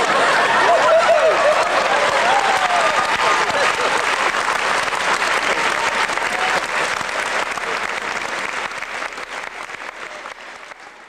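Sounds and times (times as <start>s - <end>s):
crowd applauding: 0.0s - 11.0s.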